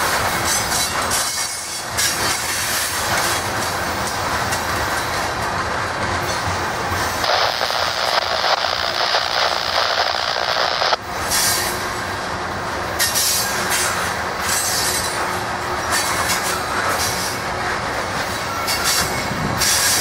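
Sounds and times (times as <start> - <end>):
train wheels on rails: 0.0 - 20.0.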